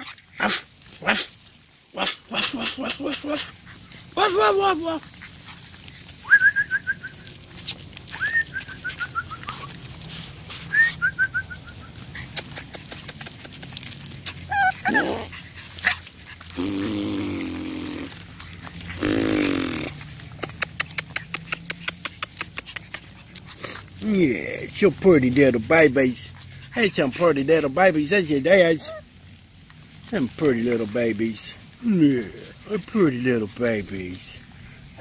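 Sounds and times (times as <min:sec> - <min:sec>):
puppies whining: 0:02.2 - 0:35.0
fast runs of light clicks: 0:12.0 - 0:14.5, 0:19.9 - 0:24.0.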